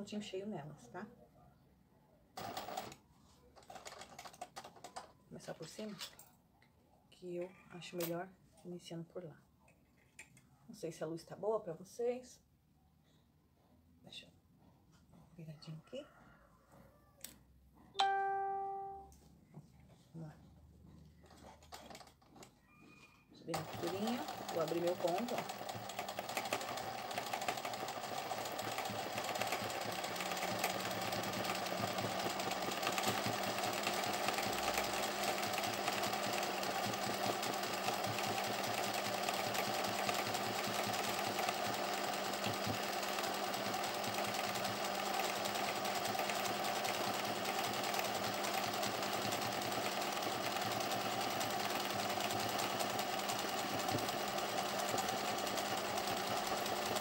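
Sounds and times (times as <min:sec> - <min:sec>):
sewing machine stitching: 0:02.4 - 0:03.0, 0:03.6 - 0:06.1, 0:21.3 - 0:22.5, 0:23.5 - 0:57.0.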